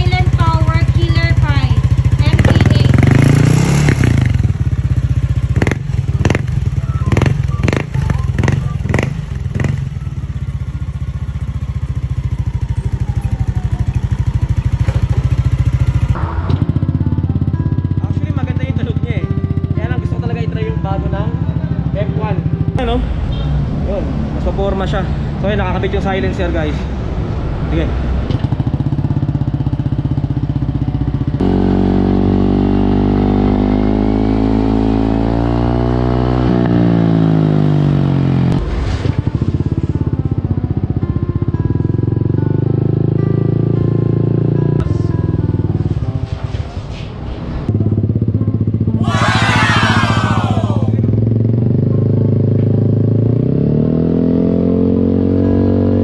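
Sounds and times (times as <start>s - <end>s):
scooter engine idling: 0.0s - 22.8s
scooter engine idling and revving: 0.0s - 27.5s, 28.1s - 46.5s, 47.4s - 56.0s.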